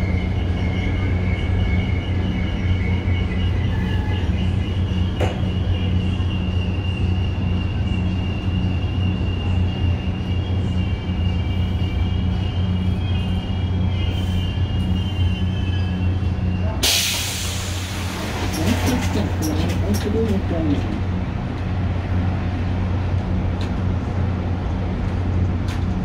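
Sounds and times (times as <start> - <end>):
faint high-pitched squeal: 0.0 - 17.8
train rumble: 0.0 - 26.0
air hiss of doors opening: 16.8 - 19.2.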